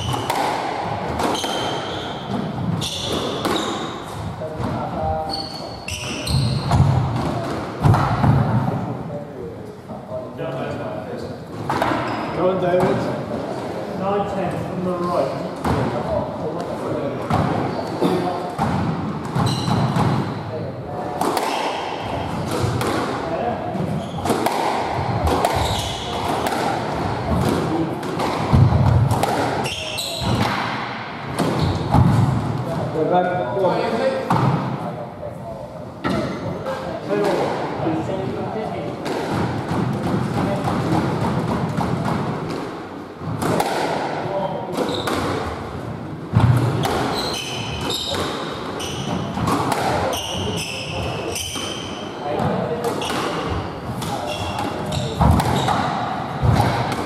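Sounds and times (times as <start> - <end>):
squash ball cracking off rackets: 0.0 - 2.4, 24.2 - 32.4, 46.4 - 50.4
shoes squeaking on court: 1.1 - 4.1, 5.2 - 7.0, 19.3 - 20.4, 23.8 - 24.4, 25.4 - 26.4, 29.6 - 30.4, 31.5 - 32.0, 44.8 - 45.2, 46.8 - 49.4, 53.0 - 56.0.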